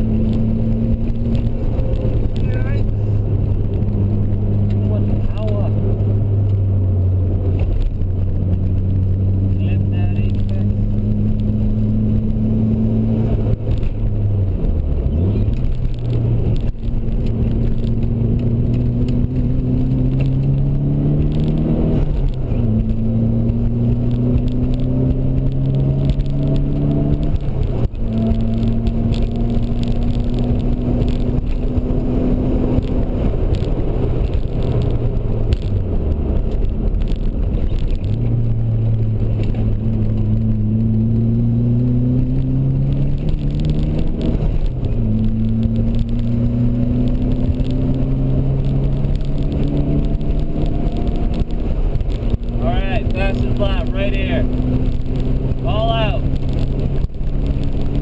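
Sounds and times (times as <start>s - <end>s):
car engine revving under hard driving: 0.0s - 58.0s
road and wind noise: 0.0s - 58.0s.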